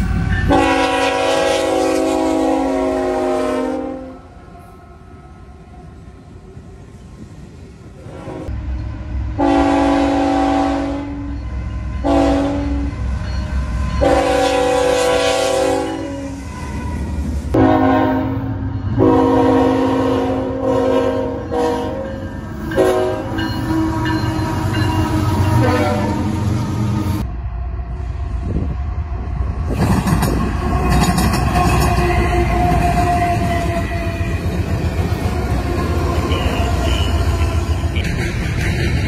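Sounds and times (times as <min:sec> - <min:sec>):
locomotive engines rumbling: 0:00.0 - 0:39.0
locomotive air horn blasts: 0:00.4 - 0:04.3, 0:09.4 - 0:11.4, 0:12.0 - 0:13.0, 0:14.0 - 0:16.9, 0:17.5 - 0:26.7, 0:31.5 - 0:34.5.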